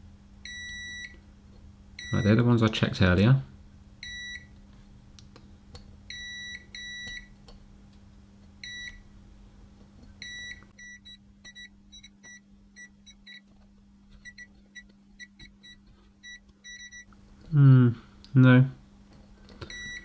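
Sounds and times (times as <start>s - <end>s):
multimeter continuity beeps: 0.4s - 1.2s, 2.0s - 2.4s, 4.0s - 4.5s, 6.1s - 7.3s, 8.6s - 9.0s, 10.2s - 13.5s, 14.2s - 17.1s, 19.7s - 20.0s.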